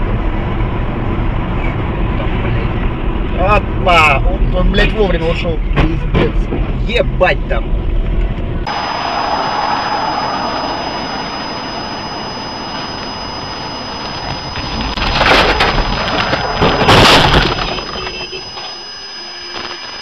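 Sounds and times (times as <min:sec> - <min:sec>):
road noise inside car: 0:00.0 - 0:20.0
car crash impact and scraping: 0:14.6 - 0:18.3.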